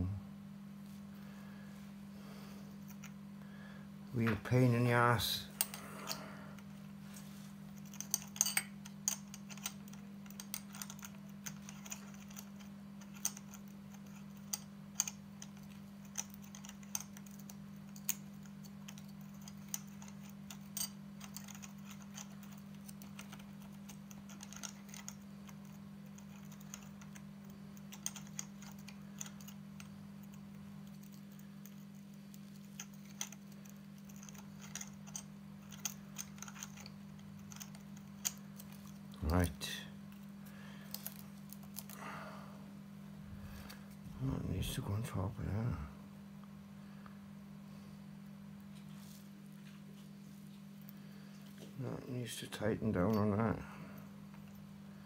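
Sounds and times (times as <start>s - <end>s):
steady low hum: 0.0s - 55.0s
small metal parts clicking: 7.8s - 40.2s, 40.8s - 42.0s.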